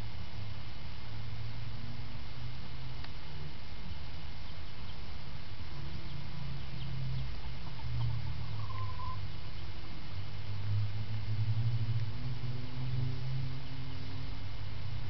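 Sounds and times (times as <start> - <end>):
low rumble: 0.0 - 15.0
soft chirp: 3.8 - 5.1, 5.7 - 10.3
chicks peeping: 3.8 - 10.3.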